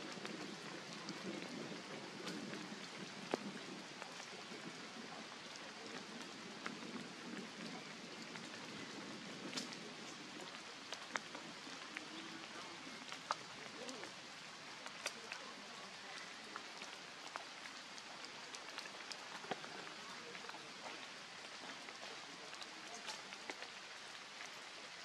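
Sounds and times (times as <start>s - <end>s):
light rain on leaves: 0.0s - 25.0s
sharp drip ticks: 9.4s - 24.6s.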